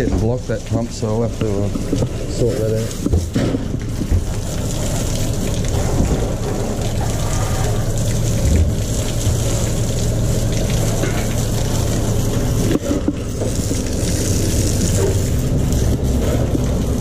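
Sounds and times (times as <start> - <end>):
man talking: 0.0 - 3.0
low pump hum: 0.0 - 17.0
water gushing from hose: 0.0 - 17.0.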